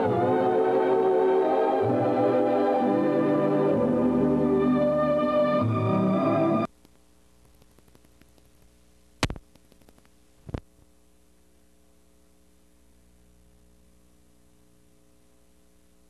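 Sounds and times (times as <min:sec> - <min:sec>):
organ music: 0:00.0 - 0:06.7
faint electrical hum: 0:06.7 - 0:16.0.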